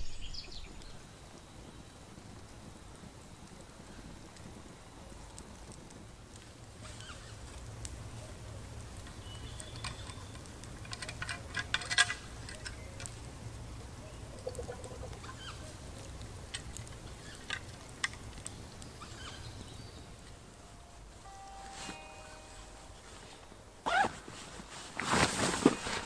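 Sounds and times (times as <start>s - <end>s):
high chirps: 18.6s - 24.3s.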